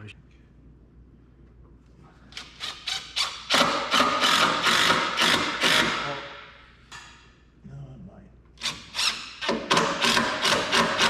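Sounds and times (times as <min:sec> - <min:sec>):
cordless impact driver hammering: 0:03.5 - 0:06.2, 0:08.7 - 0:11.0.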